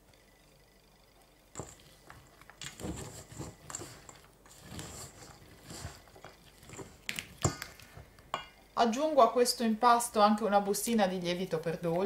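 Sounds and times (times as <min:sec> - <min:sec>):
spatula scraping dough in metal bowl: 0:02.7 - 0:07.0.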